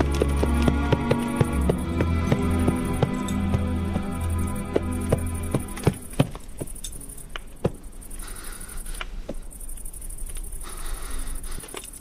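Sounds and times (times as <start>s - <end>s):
horse hoofbeats: 0.0s - 8.1s
film score music: 0.0s - 10.6s.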